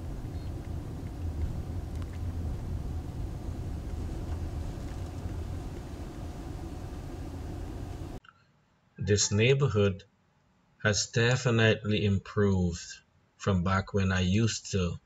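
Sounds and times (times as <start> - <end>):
car engine and tyre rumble: 0.0 - 8.2.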